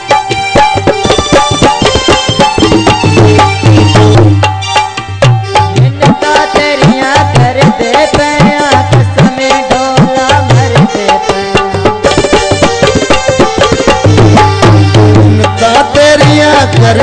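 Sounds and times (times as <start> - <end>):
held melodic notes: 0.0 - 7.2, 11.2 - 16.3
tabla playing fast rhythm: 0.0 - 17.0.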